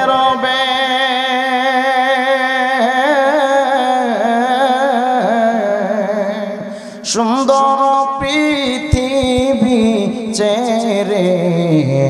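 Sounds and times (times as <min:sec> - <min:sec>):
man singing a held note: 0:00.0 - 0:03.2.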